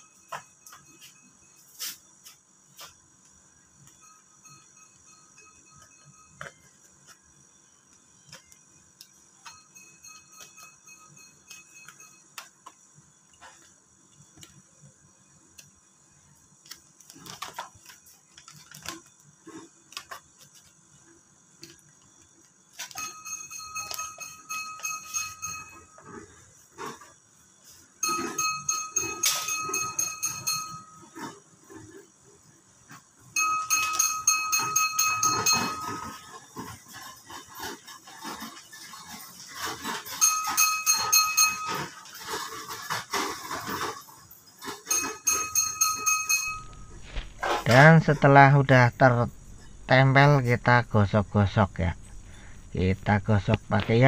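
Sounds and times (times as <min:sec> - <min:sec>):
high ringing tone: 0:00.0 - 0:03.0, 0:03.6 - 0:12.8, 0:22.8 - 0:27.0, 0:28.0 - 0:31.4, 0:33.2 - 0:36.4, 0:39.5 - 0:42.1, 0:44.6 - 0:54.0
plastic film crackling: 0:16.6 - 0:20.8.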